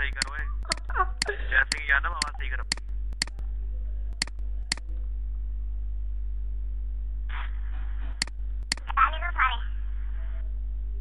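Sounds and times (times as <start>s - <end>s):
low electrical hum: 0.0s - 11.0s
computer mouse clicks: 0.1s - 0.8s.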